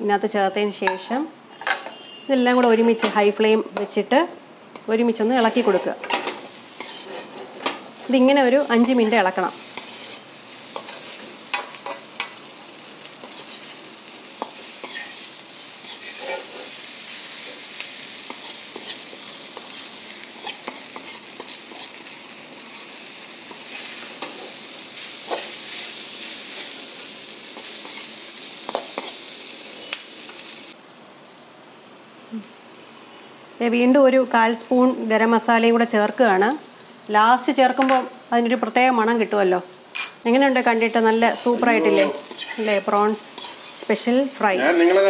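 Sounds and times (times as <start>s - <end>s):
prawns sizzling in a wok: 0.0s - 45.0s
metal spatula scraping a wok: 1.9s - 3.2s, 3.8s - 4.0s, 4.7s - 29.5s, 40.0s - 44.9s.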